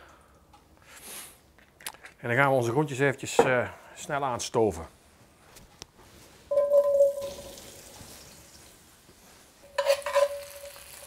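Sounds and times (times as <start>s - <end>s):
pot ringing: 6.5s - 7.8s, 9.7s - 11.0s
oil sizzling: 6.5s - 11.0s.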